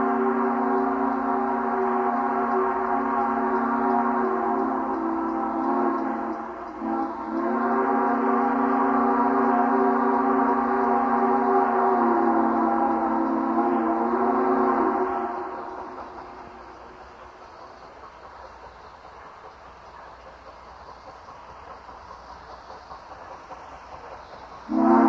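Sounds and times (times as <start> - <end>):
chime steam whistle blasts: 0.0 - 17.0, 24.5 - 25.0.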